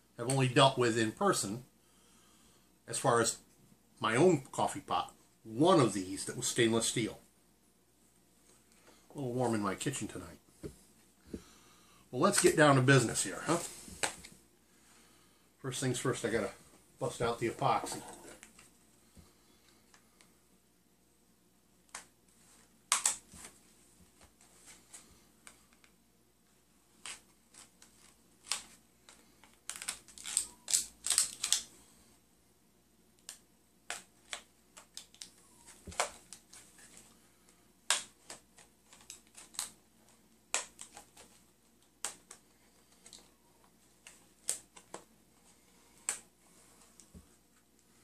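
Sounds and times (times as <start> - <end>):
plastic packaging clicks and crinkles: 27.0 - 31.7, 33.2 - 37.1, 37.9 - 39.9.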